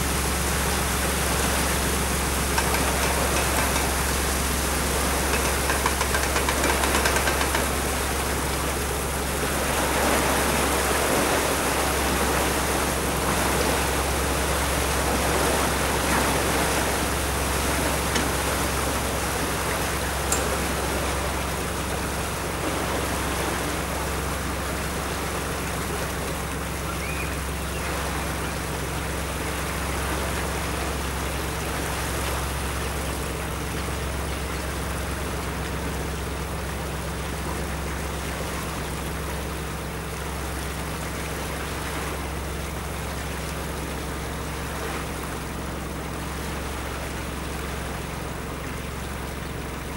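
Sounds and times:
low engine hum: 0.0s - 49.9s
rushing water noise: 0.0s - 49.9s
small click: 20.3s - 20.6s.

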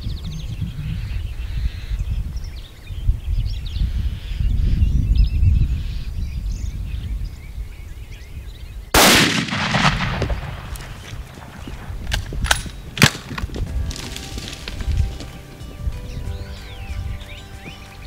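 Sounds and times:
rifle shot echoing: 9.0s - 14.9s.

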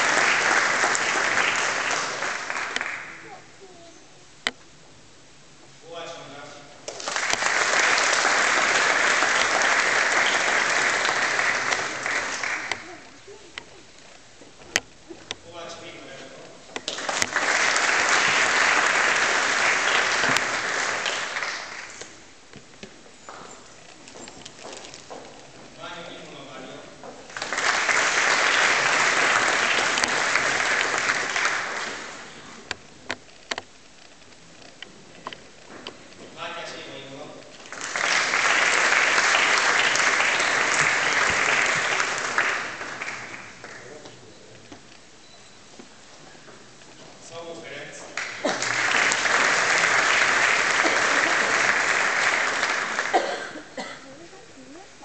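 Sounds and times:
audience applause: 0.0s - 3.4s, 6.9s - 13.2s, 16.8s - 22.2s, 27.3s - 32.7s, 37.6s - 44.0s, 48.2s - 53.8s.

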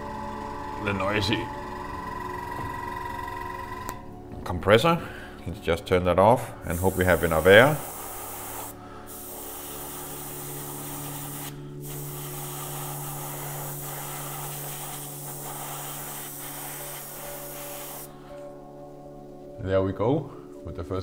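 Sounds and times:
low hum: 0.0s - 4.4s
airbrush spraying hiss: 6.7s - 18.2s.

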